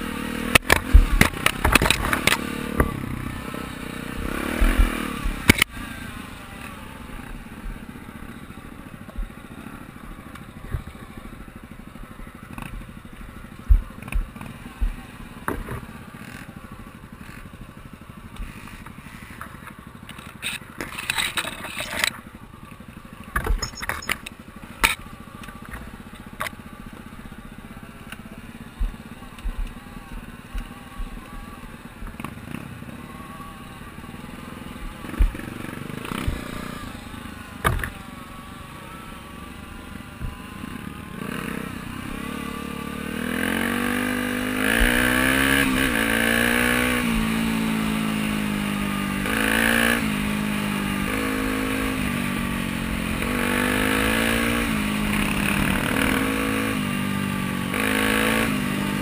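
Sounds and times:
motorcycle engine at low revs: 0:00.0 - 0:59.0
knocks and clatter over stones: 0:00.6 - 0:03.0, 0:23.3 - 0:25.0.

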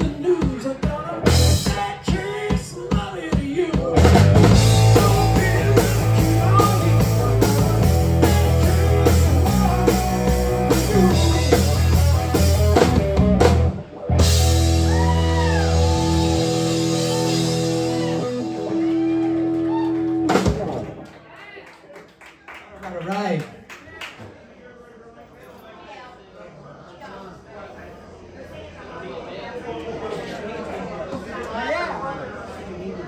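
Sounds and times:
drum kit: 0:00.0 - 0:21.0
bass guitar: 0:00.0 - 0:21.1
rock band playing: 0:00.0 - 0:21.1
electric guitar: 0:04.0 - 0:21.1.

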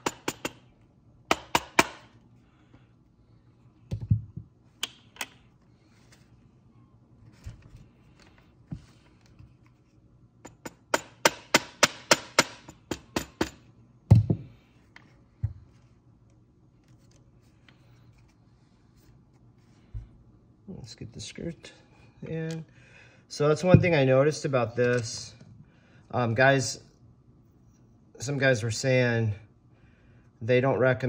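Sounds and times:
heavy thump: 0:23.8 - 0:24.0.

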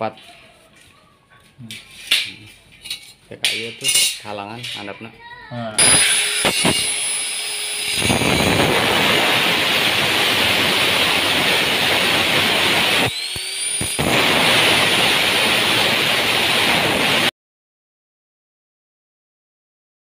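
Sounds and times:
angle grinder cutting steel: 0:05.8 - 0:17.3.

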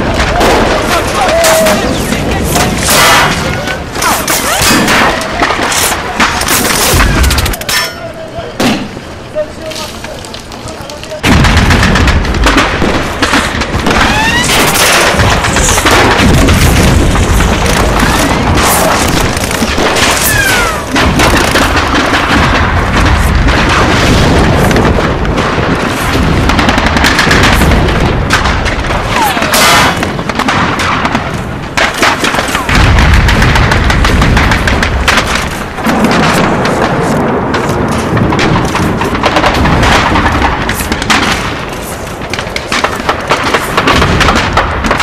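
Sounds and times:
booming explosions: 0:00.0 - 0:45.0
rapid gunfire: 0:10.9 - 0:45.0.

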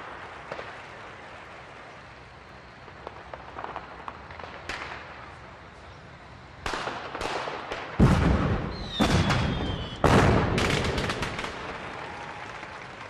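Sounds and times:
explosive bangs: 0:06.6 - 0:11.8
faint falling whistle: 0:08.7 - 0:10.1.

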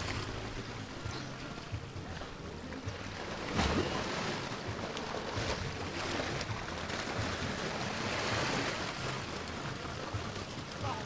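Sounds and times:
small waves washing against rocks: 0:02.4 - 0:11.0.

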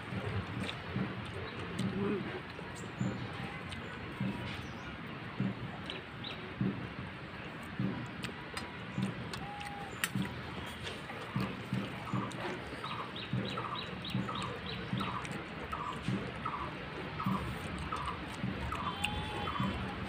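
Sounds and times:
soft low thumps: 0:00.0 - 0:09.4
bird calling: 0:09.3 - 0:20.0.

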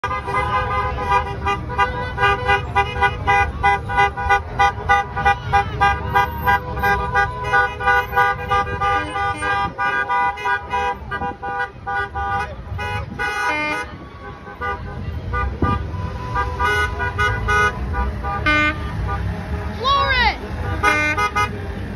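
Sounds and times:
vehicle horns beeping: 0:00.0 - 0:21.7
rumble of passing engines: 0:00.1 - 0:21.9.

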